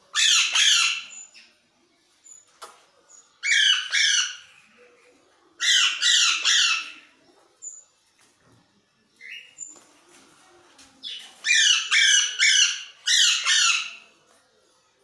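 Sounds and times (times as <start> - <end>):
parrot squawking: 0.1 - 1.2, 5.6 - 6.9, 11.5 - 14.0.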